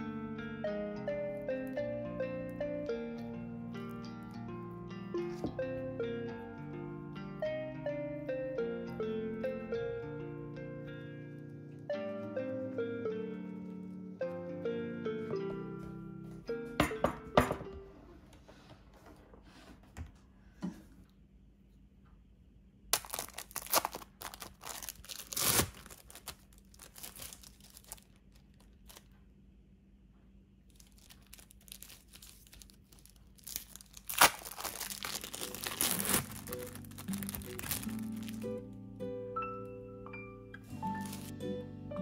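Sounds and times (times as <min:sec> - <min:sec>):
plastic packaging crinkling and tearing: 0:22.9 - 0:29.2, 0:30.7 - 0:38.6, 0:40.8 - 0:41.4.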